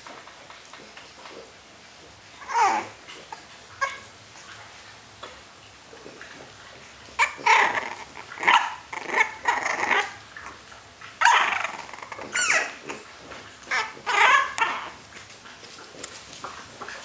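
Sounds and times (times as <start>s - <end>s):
puppy barking: 3.8s - 4.1s, 7.2s - 10.2s, 11.2s - 13.0s, 13.7s - 15.0s.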